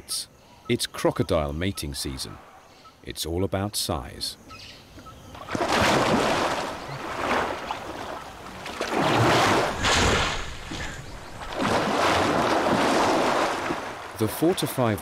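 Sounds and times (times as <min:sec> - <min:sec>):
water splashing and churning: 0:05.3 - 0:15.0.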